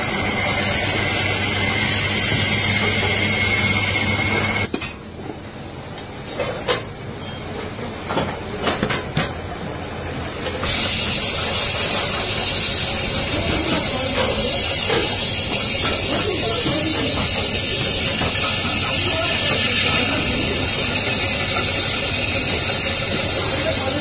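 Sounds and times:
cutting tool hissing on metal: 10.6s - 24.0s.

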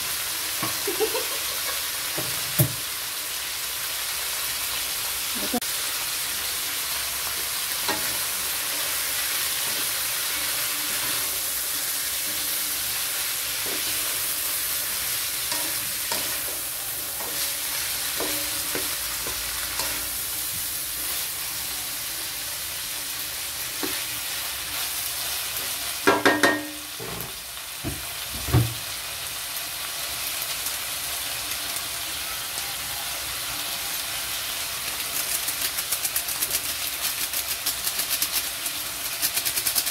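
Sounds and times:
vegetables sizzling in wok: 0.0s - 39.9s
loud knocks on wok: 2.2s - 2.8s, 27.8s - 28.8s.

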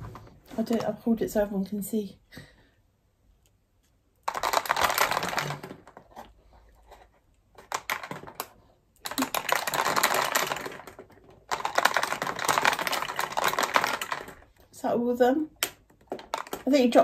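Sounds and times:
beads rattling in a tube: 4.2s - 6.0s, 7.6s - 14.7s, 15.7s - 17.0s.

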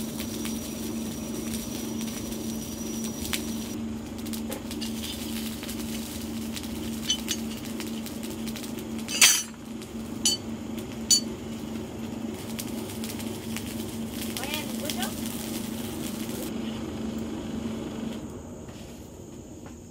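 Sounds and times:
steady low hum: 0.0s - 19.9s
steel bars clinking: 9.1s - 9.6s, 10.2s - 10.4s.

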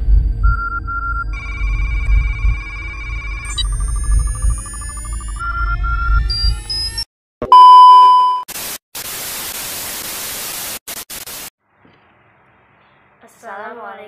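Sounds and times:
electronic rising tones: 1.3s - 7.0s
test-card beep: 3.5s - 8.4s
tv static hiss: 8.5s - 11.5s.

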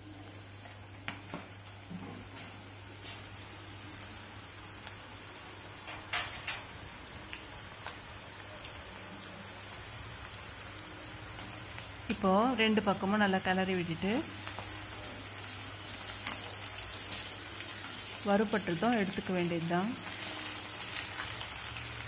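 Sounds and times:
food deep-frying in hot oil: 0.0s - 22.0s
oil popping and crackling: 5.8s - 8.9s.

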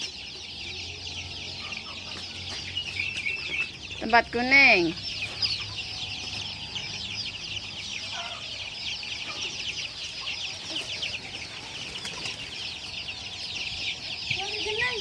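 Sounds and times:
chicks peeping: 0.0s - 15.0s.

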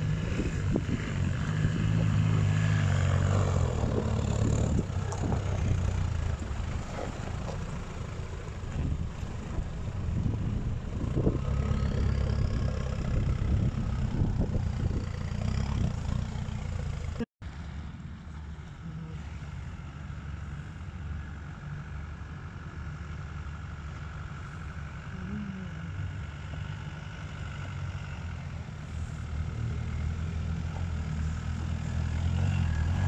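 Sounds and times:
diesel engine at low revs: 0.0s - 33.0s.

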